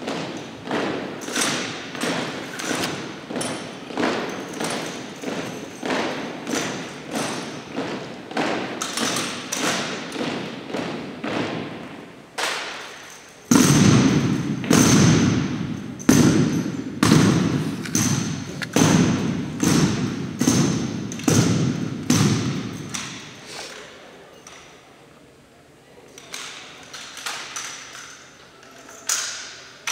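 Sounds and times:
rifles and boots striking wooden floor: 0:13.5 - 0:23.3.

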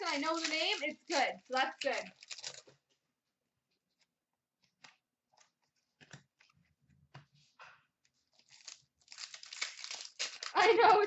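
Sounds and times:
trading cards clicking and rustling: 0:00.0 - 0:02.8, 0:08.4 - 0:11.0.

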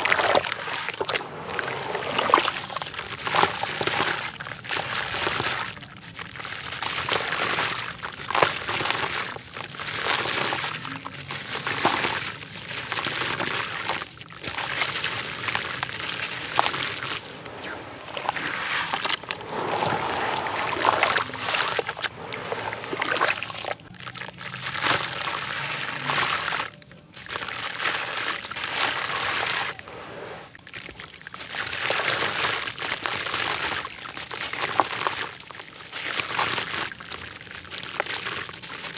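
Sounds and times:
hands swishing through water: 0:00.0 - 0:05.8, 0:12.9 - 0:23.9, 0:27.4 - 0:30.6
crumbs pattering into water: 0:00.0 - 0:29.8, 0:30.6 - 0:38.9.

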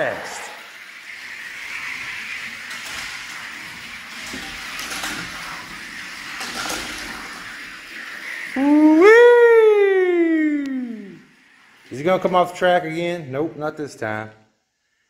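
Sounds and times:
toy cars rolling on plastic track: 0:00.0 - 0:09.2, 0:10.6 - 0:14.2.

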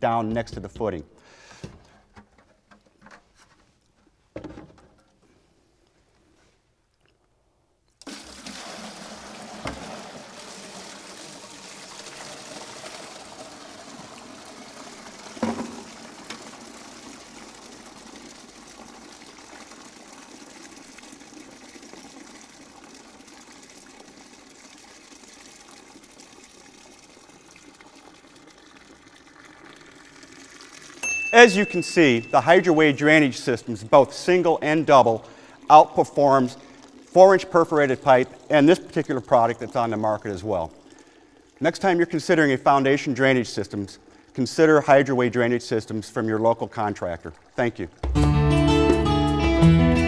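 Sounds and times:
water pouring and draining: 0:07.9 - 0:48.2
knocks: 0:15.4 - 0:15.9.

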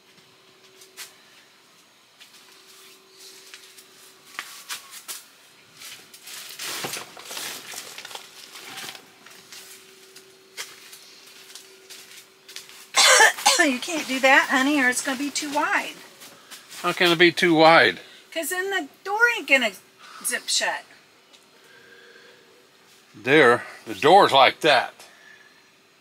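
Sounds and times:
faint steady hum: 0:00.0 - 0:26.0
plastic tarp rustling and crinkling: 0:02.4 - 0:13.0
footsteps on plastic tarp: 0:05.8 - 0:13.0.

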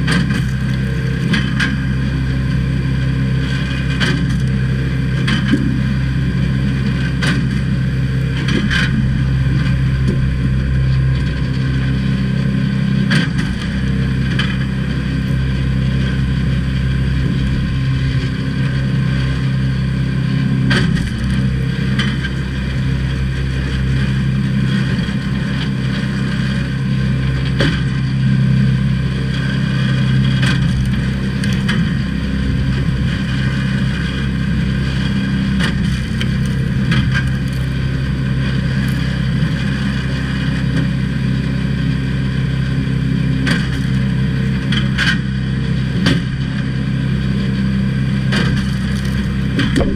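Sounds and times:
small gas engine running: 0:00.0 - 0:49.9
logs cracking as split: 0:00.1 - 0:01.5, 0:30.5 - 0:32.1, 0:35.6 - 0:39.4, 0:48.4 - 0:49.9.

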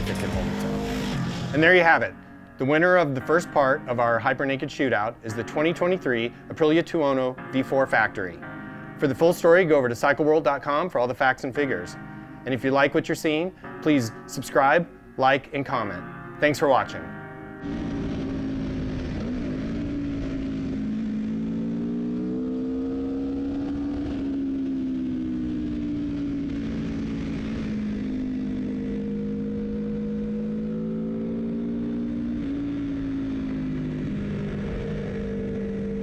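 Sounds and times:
motorcycle engine running: 0:00.0 - 0:02.0, 0:17.6 - 0:36.0
wind and road noise: 0:17.3 - 0:36.0.

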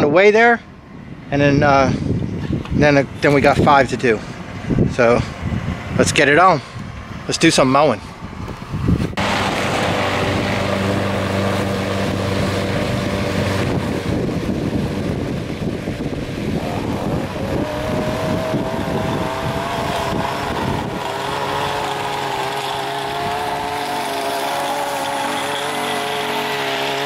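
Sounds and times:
higher engine tone rising: 0:08.3 - 0:27.0
push mower engine running: 0:09.2 - 0:27.0.

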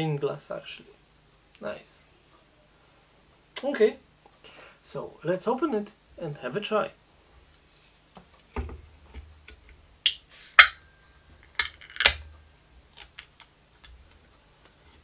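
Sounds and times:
beer can opening: 0:10.0 - 0:10.8, 0:11.4 - 0:12.3
can tab clicking: 0:10.1 - 0:10.8, 0:11.4 - 0:12.2.

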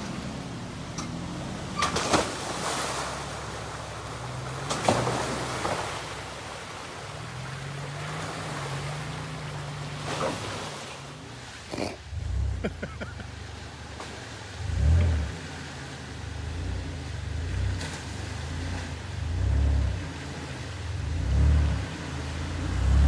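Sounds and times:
mud and water splashing: 0:00.0 - 0:23.0
truck engine running: 0:12.0 - 0:23.0.

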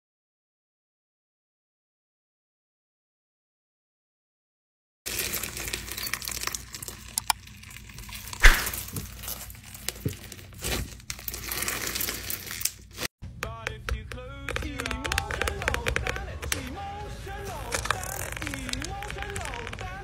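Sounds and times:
slime crackling and popping: 0:05.1 - 0:13.1, 0:17.5 - 0:20.0.

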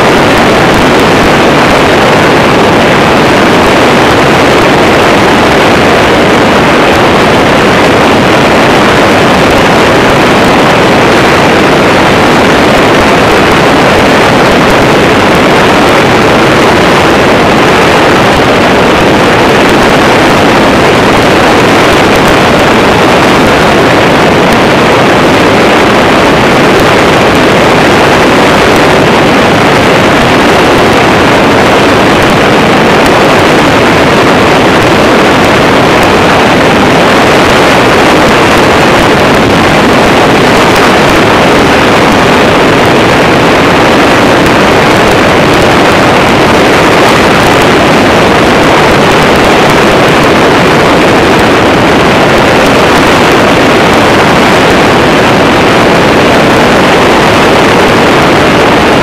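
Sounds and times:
wind rush on microphone: 0:00.0 - 0:59.0.

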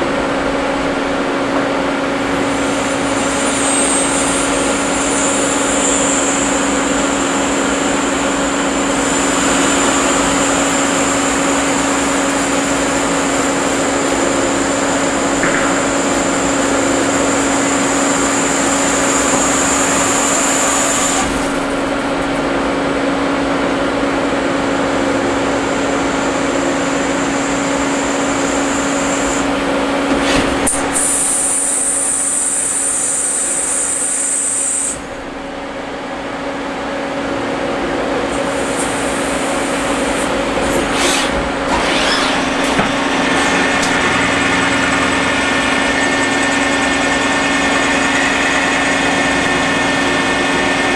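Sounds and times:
lathe machine hum: 0:00.0 - 0:50.9.

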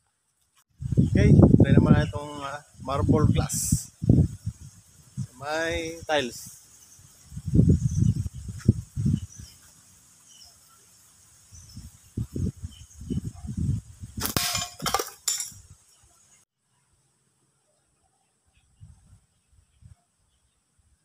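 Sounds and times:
ringing clatter: 0:14.4 - 0:15.6.

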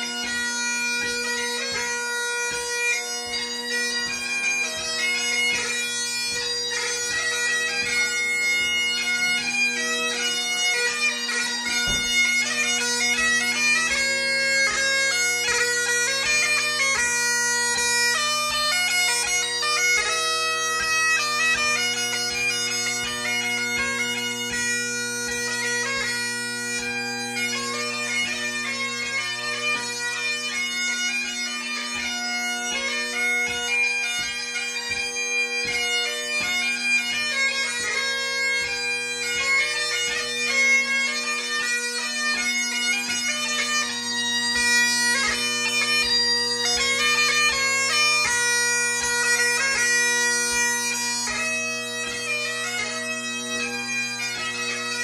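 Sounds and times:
bagpipe chanter playing a tune: 0:00.0 - 0:55.0
bagpipe drones: 0:00.0 - 0:55.0.

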